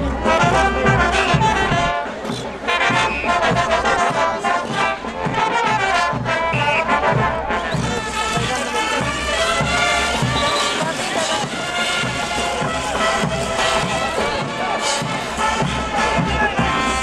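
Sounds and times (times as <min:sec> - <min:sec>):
brass band playing dance music: 0:00.0 - 0:17.0
steady low drum beat: 0:00.0 - 0:17.0.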